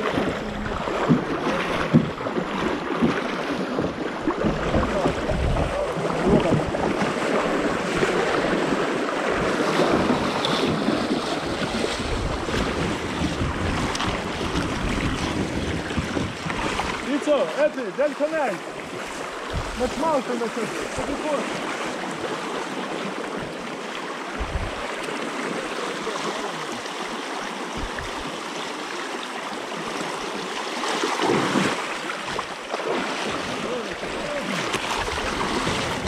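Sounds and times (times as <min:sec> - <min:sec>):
wind buffeting microphone: 0:00.0 - 0:17.1, 0:18.8 - 0:20.2, 0:24.3 - 0:25.0, 0:27.7 - 0:28.3, 0:34.2 - 0:36.0
kayak paddle splashing in water: 0:00.0 - 0:36.0
water rippling and bubbling: 0:00.0 - 0:36.0.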